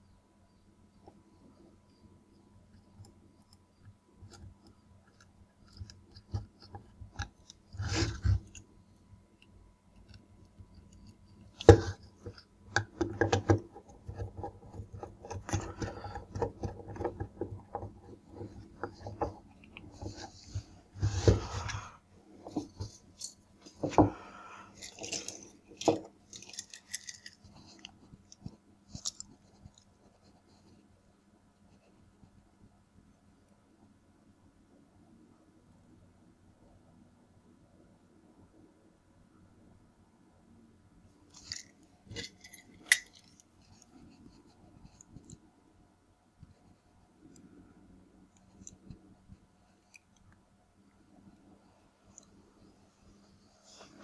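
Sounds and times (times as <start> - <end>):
wires rustling: 9.9 - 30.8
screwdriver clicking and scraping: 24.7 - 29.8, 41.3 - 43.9.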